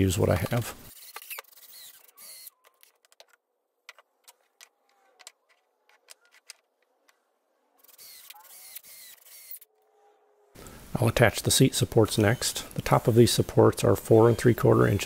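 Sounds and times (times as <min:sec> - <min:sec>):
cordless drill drilling wood: 0:01.0 - 0:02.6, 0:07.9 - 0:09.6
wooden boards clicking and knocking: 0:02.6 - 0:07.2.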